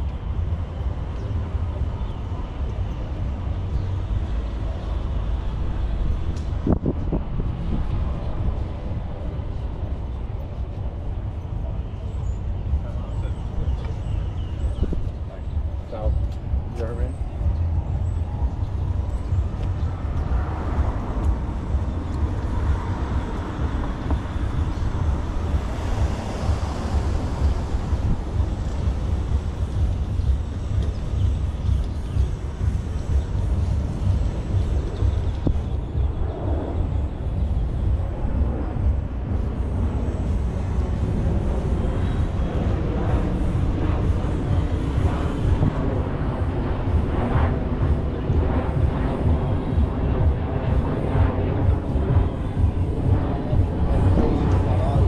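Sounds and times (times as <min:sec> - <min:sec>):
low city rumble: 0:00.0 - 0:55.0
vehicle passing: 0:16.8 - 0:35.8.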